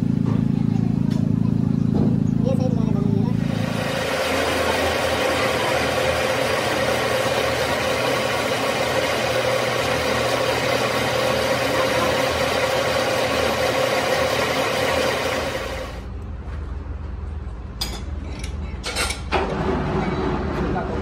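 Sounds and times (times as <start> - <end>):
metal lathe whine and hum: 3.4 - 16.0.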